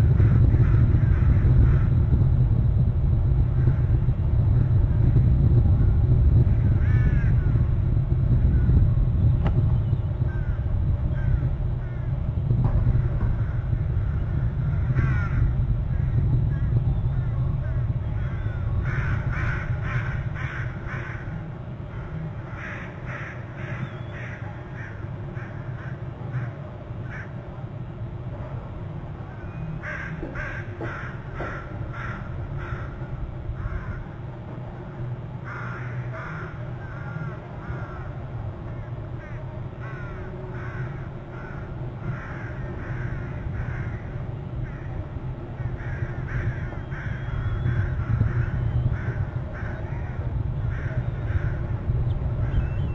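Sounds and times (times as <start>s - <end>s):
low rumble: 0.0s - 52.9s
harsh bird calls: 13.4s - 27.3s, 45.6s - 52.9s.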